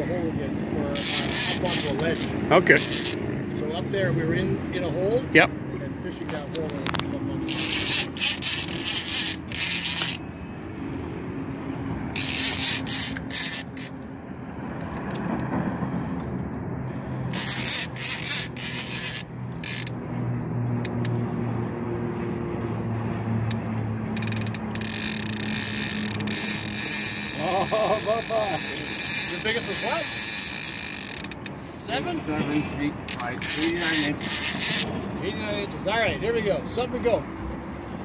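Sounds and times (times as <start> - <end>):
fishing reel ratcheting: 1.0 - 3.2, 6.8 - 10.2, 12.1 - 14.1, 17.3 - 20.0, 23.5 - 31.6, 33.0 - 34.9
low motor hum: 6.5 - 31.5.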